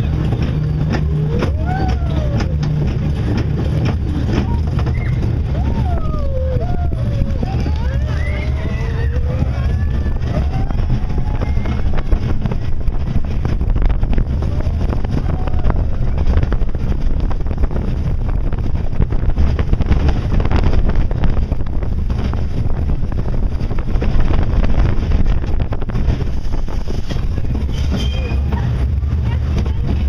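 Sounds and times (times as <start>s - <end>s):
rattling: 0.0s - 30.0s
roller coaster wheels rumbling: 0.0s - 30.0s
wind on microphone: 0.0s - 30.0s
high squeak: 27.7s - 28.7s.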